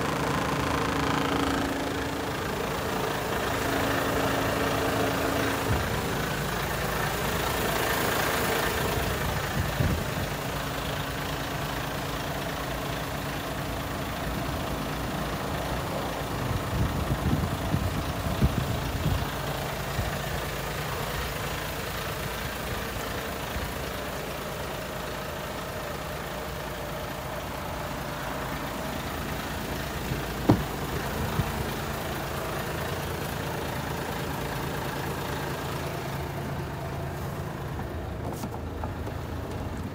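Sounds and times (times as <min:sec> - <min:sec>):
diesel engine idling: 0:00.0 - 0:39.9
light knocks: 0:30.4 - 0:30.7.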